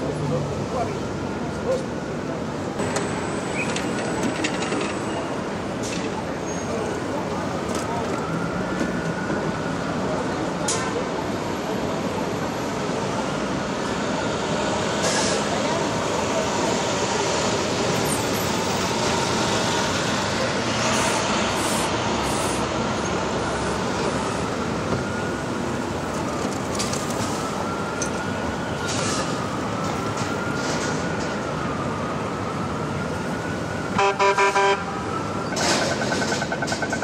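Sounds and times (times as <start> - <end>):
city street traffic: 0.0 - 37.0
distant siren wailing: 6.9 - 37.0
vehicle horn honks: 34.0 - 34.9.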